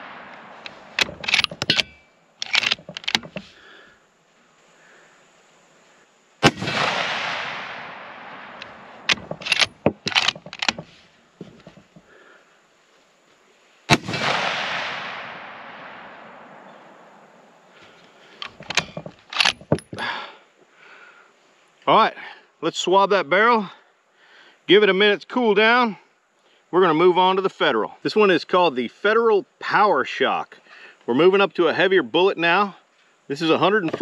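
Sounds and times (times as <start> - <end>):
rifle shots with echo: 0.0 - 1.9, 6.4 - 10.8, 13.9 - 17.1
rifle bolt metallic clicks: 0.3 - 3.5, 8.6 - 11.9, 18.4 - 20.0.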